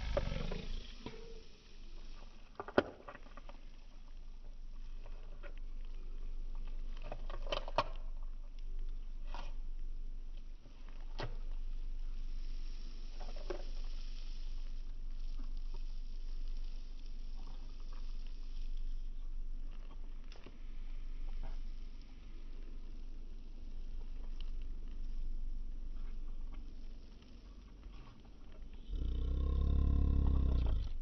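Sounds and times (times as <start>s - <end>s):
deer chewing food: 11.4s - 29.1s.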